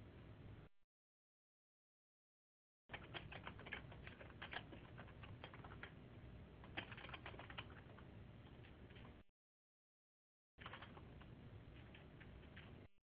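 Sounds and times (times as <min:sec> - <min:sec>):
typing on computer keyboard: 0:02.9 - 0:06.0, 0:06.6 - 0:09.2, 0:10.6 - 0:12.9.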